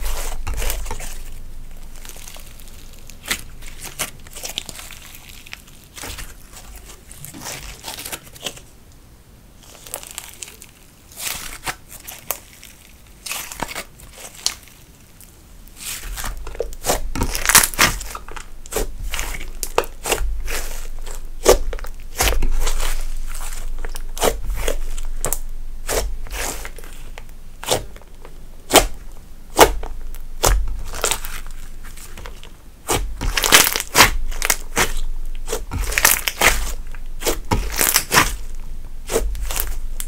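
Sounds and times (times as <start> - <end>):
sticky slime clicks and crackles: 16.2 - 20.2, 29.6 - 38.5.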